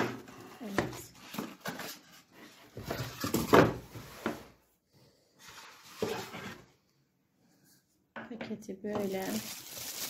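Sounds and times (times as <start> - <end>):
plastic bag crinkling: 9.0 - 10.0.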